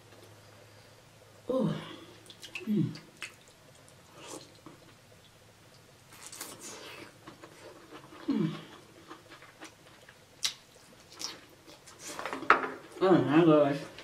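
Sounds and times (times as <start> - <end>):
wet mouth eating noises: 2.2 - 5.0, 6.1 - 12.4.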